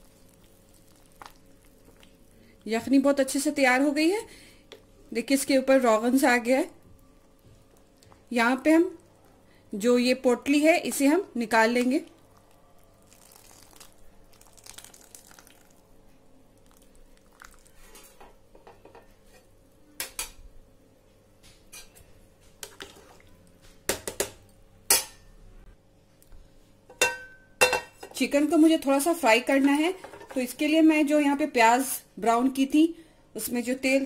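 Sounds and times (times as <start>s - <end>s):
broth dripping and bubbling: 12.1s - 15.9s
metal cookware clinking: 23.9s - 25.3s, 26.9s - 28.2s.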